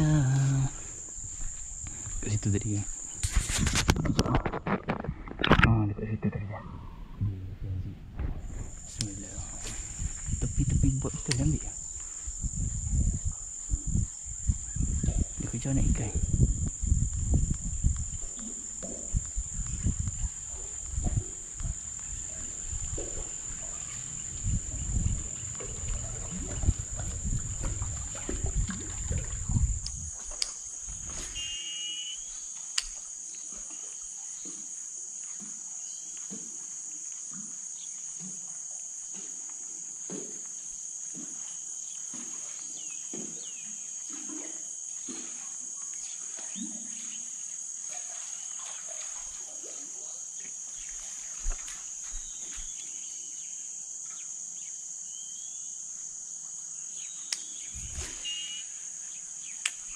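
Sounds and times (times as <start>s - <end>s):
insects buzzing: 0.0s - 59.9s
low rumbling buffeting: 6.3s - 30.2s.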